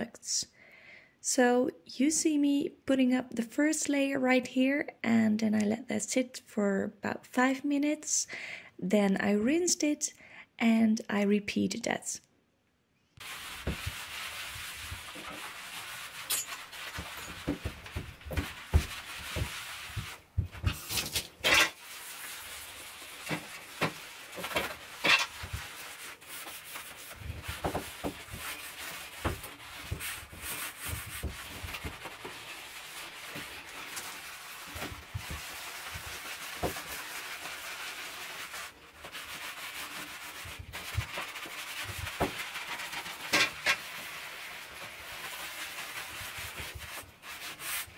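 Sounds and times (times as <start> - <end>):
sponge scrubbing ceramic tiles: 13.2 - 47.9.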